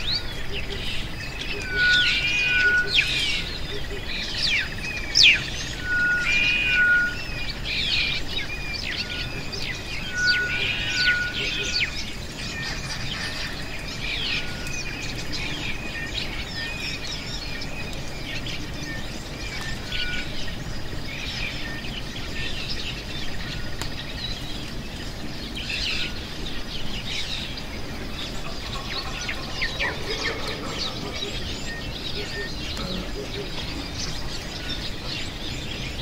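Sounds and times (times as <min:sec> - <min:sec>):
wild birds chirping: 0:00.0 - 0:36.0.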